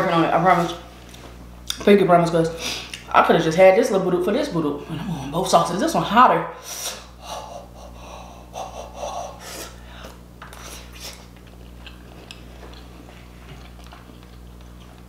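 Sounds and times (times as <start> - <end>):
steady low hum: 0.0 - 15.0
breaths: 6.6 - 10.2
chewing: 10.0 - 15.0.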